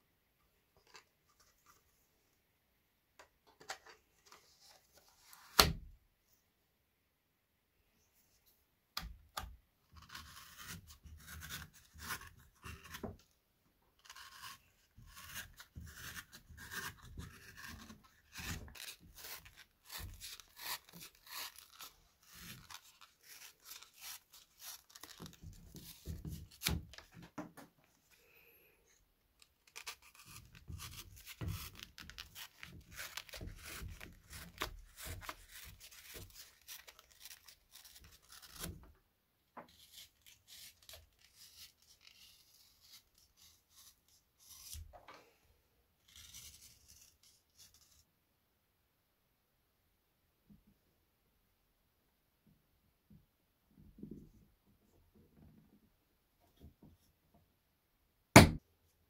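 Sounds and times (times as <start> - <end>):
knife cutting leather: 9.9 - 13.2, 14.0 - 27.0, 29.7 - 38.9.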